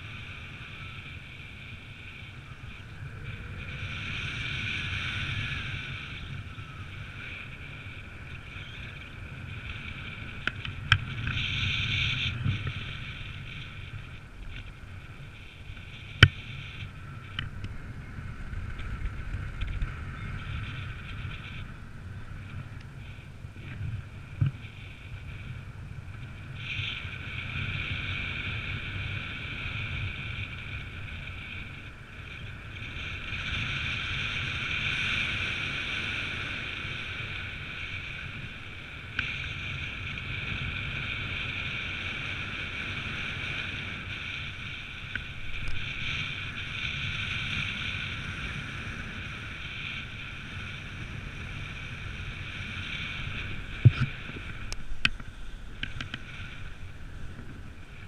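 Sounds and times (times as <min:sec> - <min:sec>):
wind buffeting microphone: 0:00.0 - 0:58.0.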